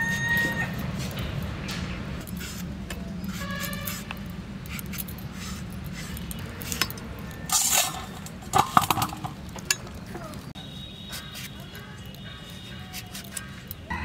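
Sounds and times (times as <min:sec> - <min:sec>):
blade scraping fruit peel: 0:02.2 - 0:08.5, 0:11.0 - 0:13.8.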